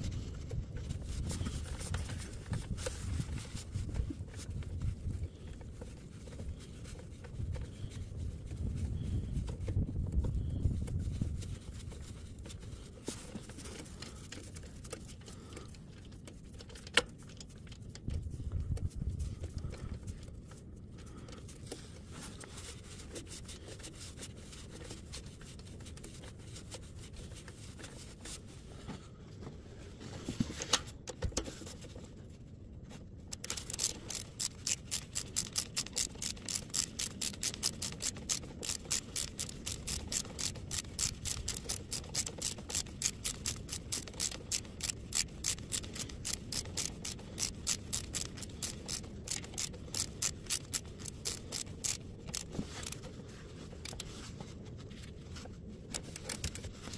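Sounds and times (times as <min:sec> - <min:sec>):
rubbing and handling of a tool: 0:00.0 - 0:56.9
socket ratchet clicking: 0:33.4 - 0:53.0.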